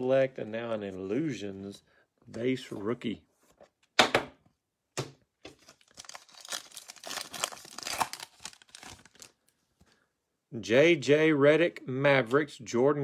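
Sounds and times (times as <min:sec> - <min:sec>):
wrapper crinkling: 0:05.5 - 0:09.4
foil pack ripping: 0:05.8 - 0:09.3.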